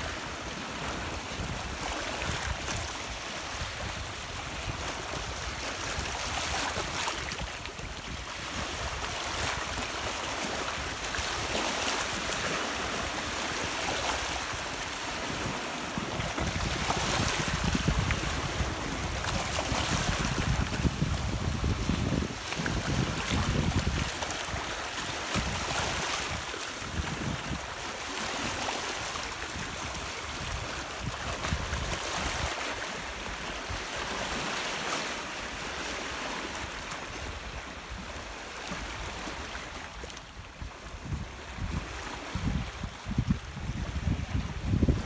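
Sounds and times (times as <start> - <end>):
waves breaking over rocks: 0.0 - 45.0
wind buffeting microphone: 13.4 - 27.8, 40.6 - 45.0.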